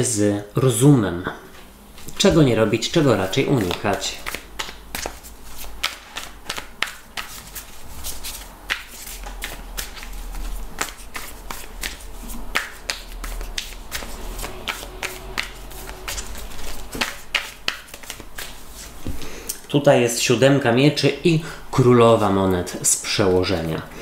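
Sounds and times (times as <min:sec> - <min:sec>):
cards being shuffled: 0:03.1 - 0:19.3.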